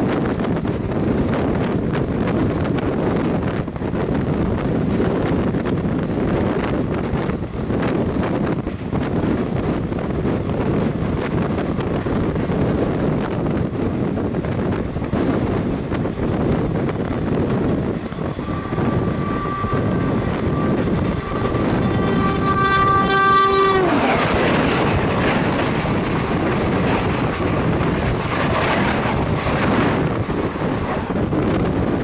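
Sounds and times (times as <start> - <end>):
wind on microphone: 0.0 - 32.0
train coaches rushing past: 6.1 - 32.0
electric locomotive horn: 18.2 - 25.5.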